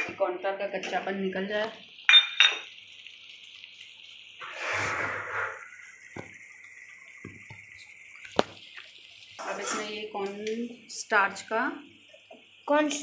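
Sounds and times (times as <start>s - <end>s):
simmering gravy popping: 1.6s - 13.0s
steady hiss: 1.6s - 13.0s
spatula scraping a metal pan: 9.4s - 10.0s.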